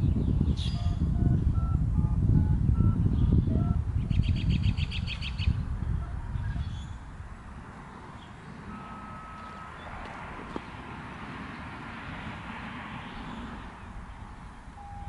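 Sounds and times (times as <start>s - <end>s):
bird singing a fast trill: 0.0s - 1.0s, 3.0s - 5.6s.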